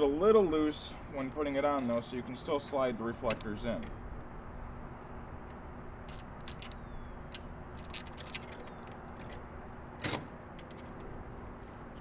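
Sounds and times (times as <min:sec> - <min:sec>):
low background hum: 0:00.0 - 0:12.0
metal bracket clicking and clinking: 0:01.6 - 0:04.0, 0:06.0 - 0:09.4.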